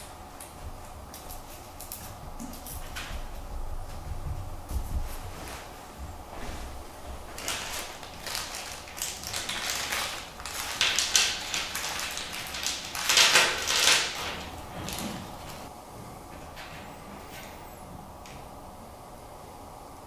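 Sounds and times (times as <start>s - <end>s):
plastic bag crinkling: 6.6s - 15.7s.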